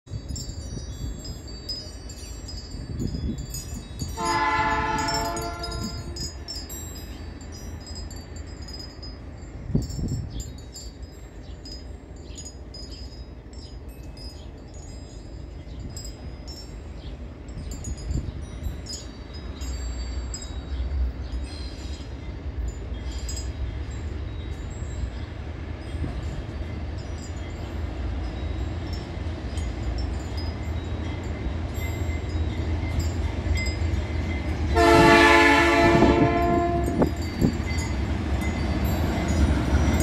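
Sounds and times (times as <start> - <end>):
locomotive air horn blast: 4.2 - 6.2, 34.8 - 37.1.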